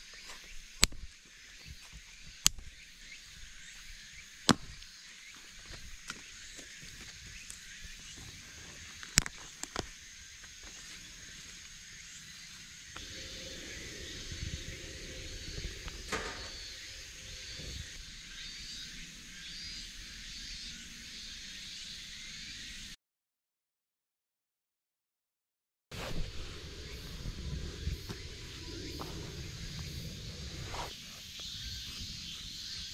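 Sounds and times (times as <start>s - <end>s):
dry stick snapping: 0.8s - 1.1s.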